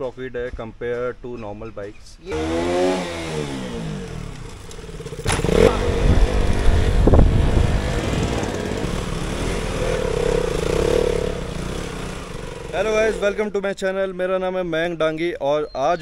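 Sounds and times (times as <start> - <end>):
motorcycle engine revving: 2.3 - 13.4.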